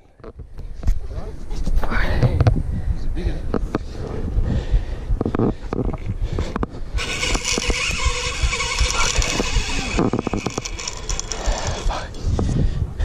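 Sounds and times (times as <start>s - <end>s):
wind rumbling on microphone: 0.0s - 13.0s
fishing reel drag buzzing: 7.0s - 12.2s
quick reel clicks: 7.0s - 12.2s.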